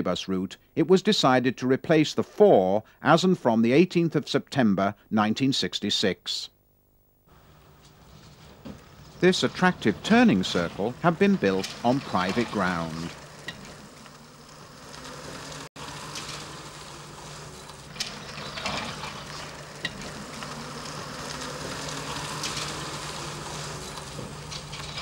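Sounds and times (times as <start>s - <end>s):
crackling hiss: 7.2s - 25.0s.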